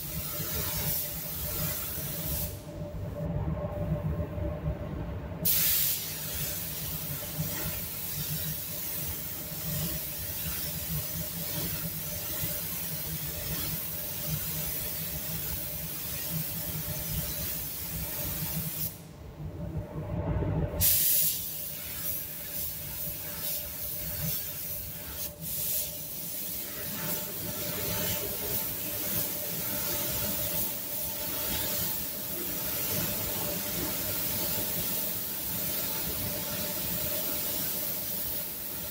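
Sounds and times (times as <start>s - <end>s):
spray gun hissing: 0.0s - 2.6s, 5.4s - 19.0s, 20.8s - 38.9s
ventilation hum: 0.0s - 38.9s.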